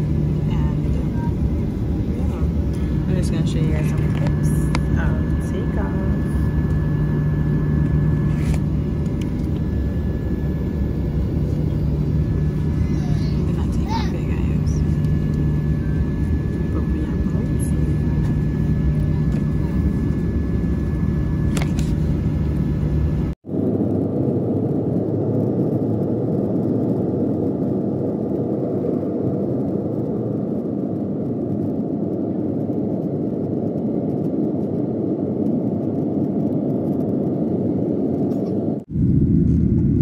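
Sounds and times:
cabin hum with constant tones: 0.0 - 23.4
jet engines roaring: 0.0 - 40.0.

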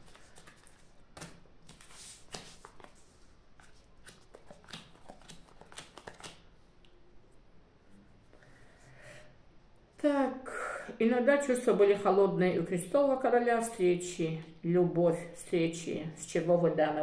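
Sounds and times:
playing cards slapping on table: 0.0 - 3.0, 4.0 - 6.5.

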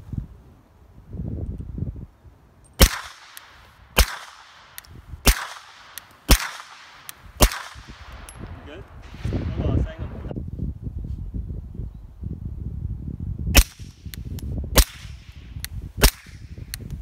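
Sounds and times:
suppressed pistol shots: 2.8 - 8.3.

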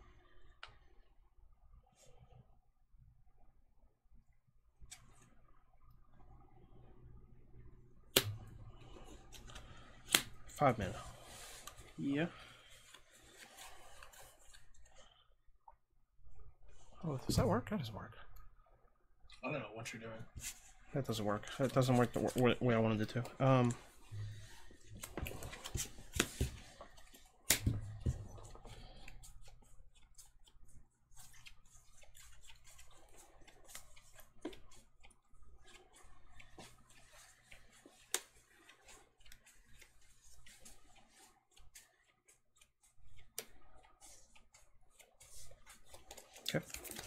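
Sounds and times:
cards clicking and snapping: 9.3 - 10.6, 25.0 - 27.8, 45.1 - 47.0.

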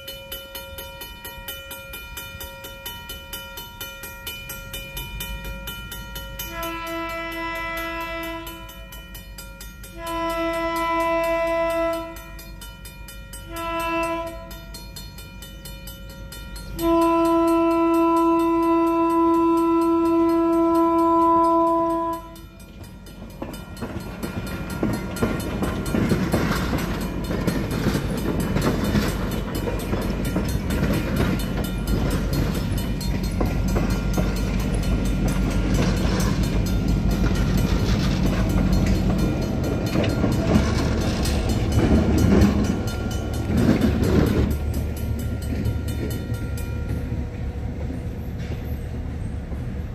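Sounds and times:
train wheels rumbling and clattering: 0.0 - 49.9
train air horn blasts: 6.4 - 8.9, 9.9 - 12.4, 13.5 - 14.7, 16.8 - 22.5.

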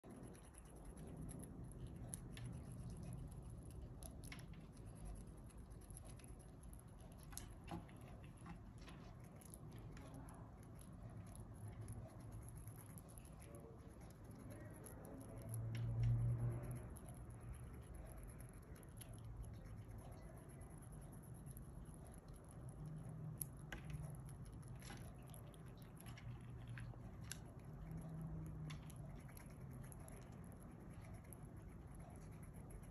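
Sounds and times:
low steady hum: 0.0 - 32.9
squirrel crunching nuts: 0.0 - 32.9.

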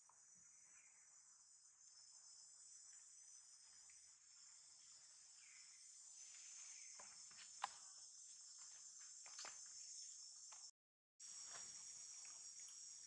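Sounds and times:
high-pitched insect drone: 0.0 - 13.0.

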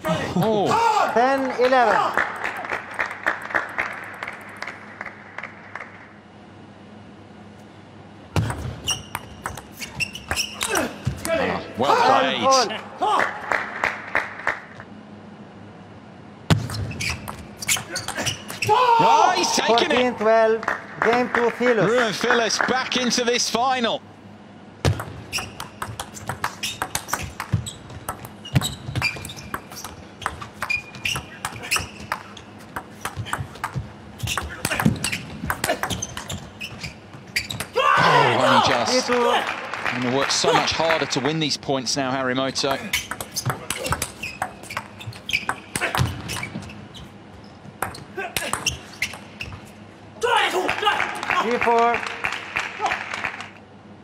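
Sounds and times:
short high squeaks: 8.8 - 10.9, 16.8 - 18.7, 25.3 - 29.9, 30.6 - 32.6, 34.2 - 37.8, 42.9 - 47.6, 48.6 - 49.8
sparse applause: 38.0 - 41.4.

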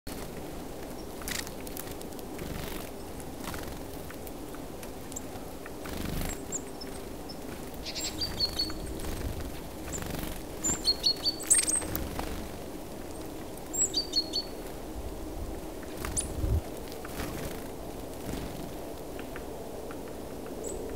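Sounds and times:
low background noise: 0.1 - 20.9
songbirds chirping: 0.1 - 20.9.

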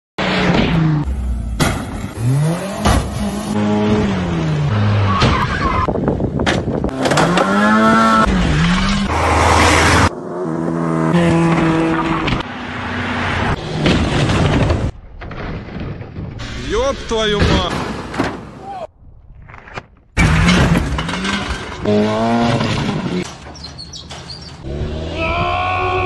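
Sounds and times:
car engines revving hard: 0.2 - 14.9, 20.2 - 23.3, 24.5 - 26.0.

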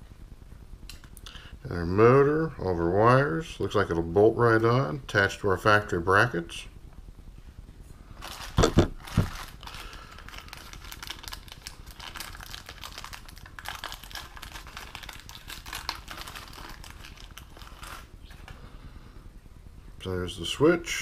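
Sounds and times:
plastic bag crinkling: 8.1 - 18.6.

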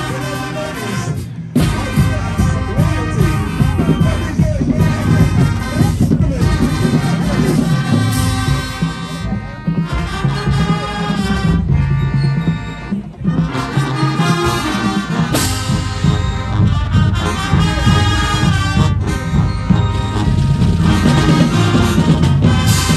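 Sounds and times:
marching band brass playing: 0.0 - 22.9.

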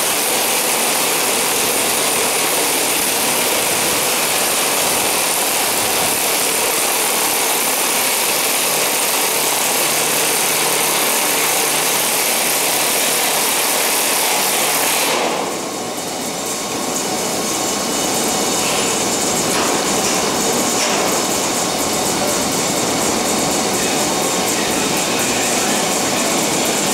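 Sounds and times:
grain rushing from hopper: 0.0 - 15.5
cordless power tool running: 0.0 - 26.9
steady hum: 14.9 - 26.9.

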